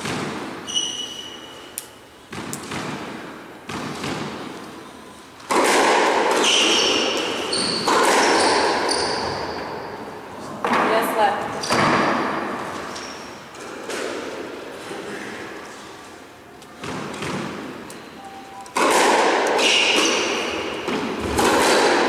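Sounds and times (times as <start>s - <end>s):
squash ball knocks: 2.3s - 4.5s, 5.5s - 9.5s, 16.8s - 17.7s, 18.8s - 22.0s.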